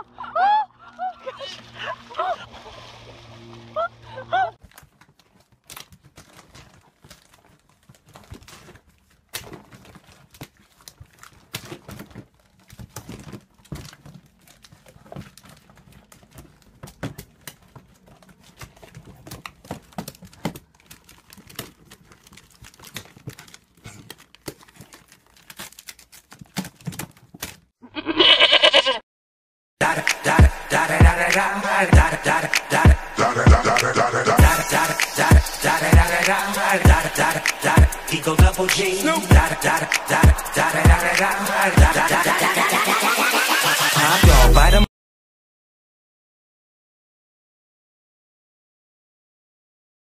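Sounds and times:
goat bleat: 27.8s - 29.0s.

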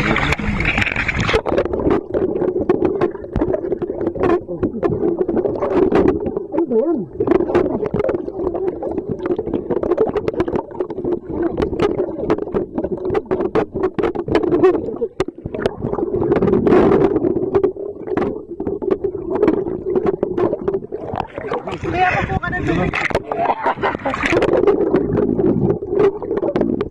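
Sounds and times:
water sloshing and splashing: 0.0s - 26.9s.

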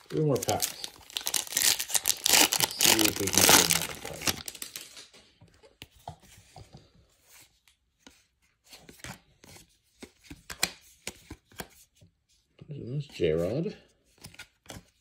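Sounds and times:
foil wrapper crinkling: 0.0s - 5.1s
cards clicking and sliding: 8.1s - 11.8s.

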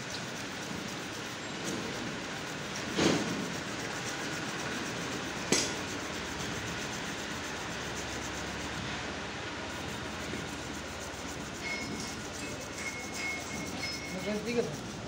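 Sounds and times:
steady background hiss: 0.0s - 15.0s
sharp metallic click: 5.5s - 5.8s.

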